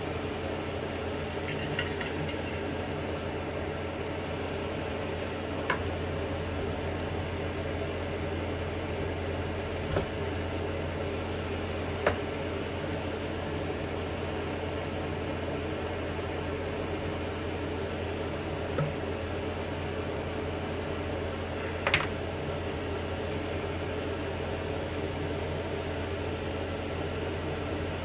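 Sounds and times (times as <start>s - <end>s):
mechanical hum and hiss: 0.0s - 28.0s.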